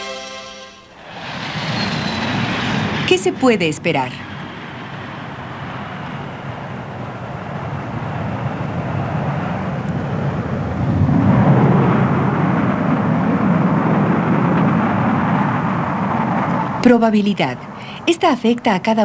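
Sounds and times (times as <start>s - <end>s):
airliner passing overhead: 0.0s - 19.0s.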